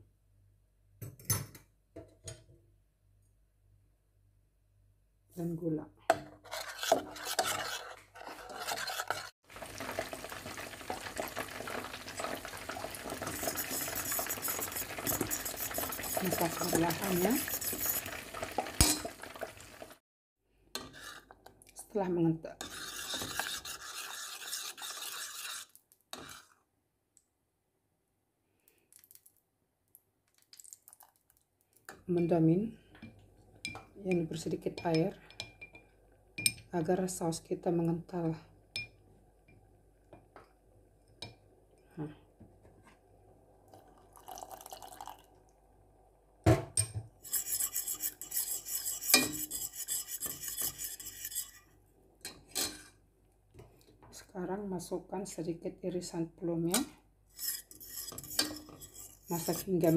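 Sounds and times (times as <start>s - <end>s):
spoon scraping sauce in a pot: 6.3s - 9.3s, 11.9s - 18.6s, 20.8s - 21.6s, 22.6s - 26.6s, 47.2s - 51.7s, 57.3s - 59.9s.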